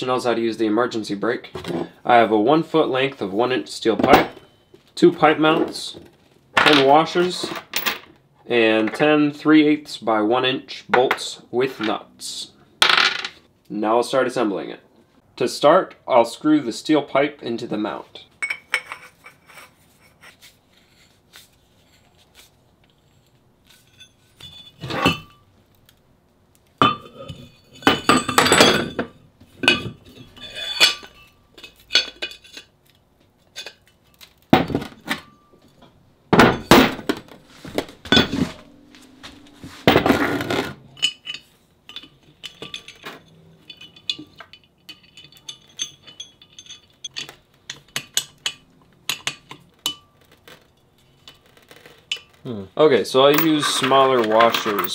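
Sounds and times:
metal scraping clanks: 0:23.7 - 0:25.4, 0:35.2 - 0:52.4
heavy steel parts clanking: 0:26.8 - 0:32.7, 0:34.6 - 0:52.4, 0:53.2 - 0:54.9.

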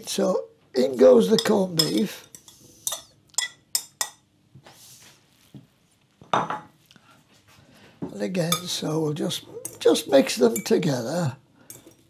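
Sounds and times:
fork clinking against ceramic bowl: 0:01.3 - 0:04.2, 0:10.5 - 0:10.8.

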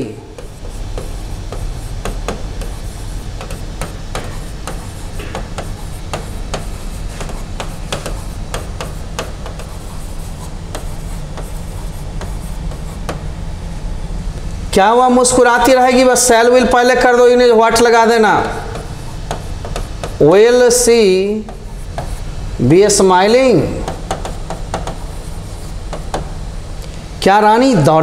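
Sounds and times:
stylus tapping on touchscreen: 0:18.7 - 0:20.2, 0:23.8 - 0:25.0.

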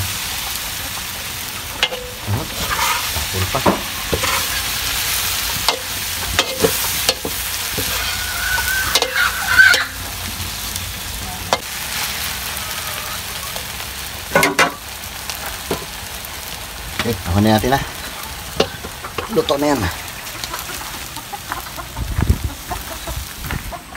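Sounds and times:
noodles sizzling in wok: 0:00.0 - 0:23.4
metal spatula scraping wok: 0:00.5 - 0:14.8, 0:17.6 - 0:21.1.

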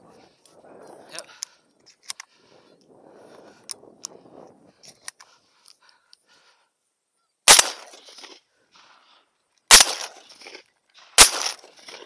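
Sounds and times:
shotgun shots: 0:07.5 - 0:08.4, 0:09.7 - 0:12.0.

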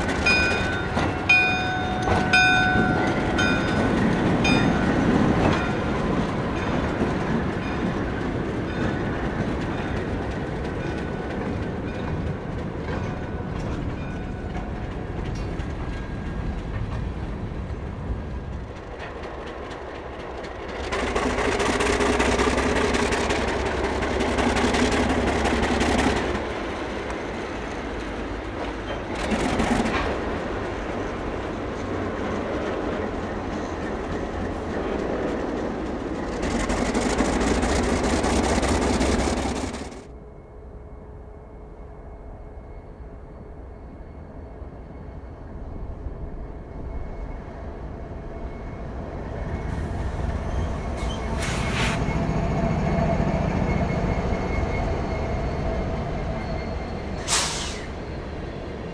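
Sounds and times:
diesel locomotive engine rumbling: 0:00.0 - 0:58.9
rail cars rolling: 0:00.0 - 0:58.9
locomotive bell ringing: 0:00.1 - 0:07.0.

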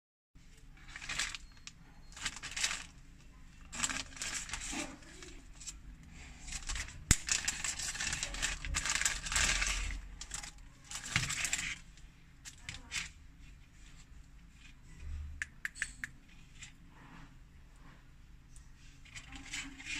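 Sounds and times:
plastic bag crinkling: 0:00.6 - 0:13.2, 0:19.0 - 0:19.9
sharp click: 0:15.4 - 0:16.2.

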